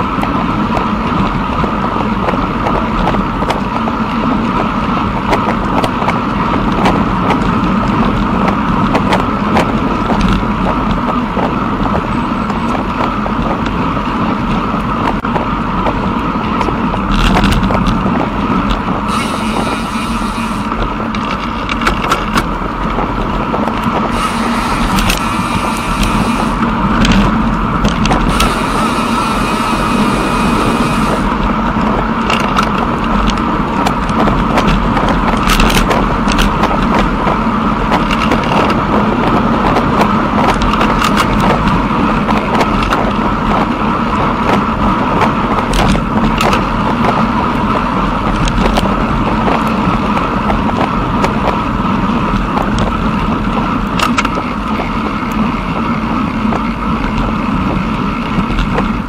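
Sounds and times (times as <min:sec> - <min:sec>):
constant hum: 0:00.0 - 0:59.0
rolling rumble: 0:00.0 - 0:59.0
wind noise: 0:00.0 - 0:59.0
small clicks and rattles: 0:15.8 - 0:18.9, 0:21.1 - 0:24.0, 0:31.7 - 0:37.2, 0:37.9 - 0:43.2, 0:45.2 - 0:47.6.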